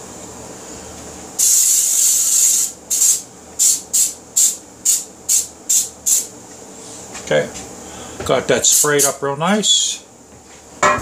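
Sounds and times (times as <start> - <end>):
aerosol spray hissing: 1.4 - 6.3.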